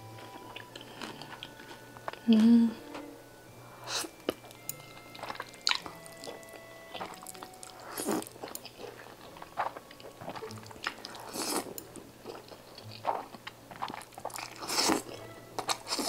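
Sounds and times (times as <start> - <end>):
chewing: 0.2 - 2.4, 3.8 - 16.0.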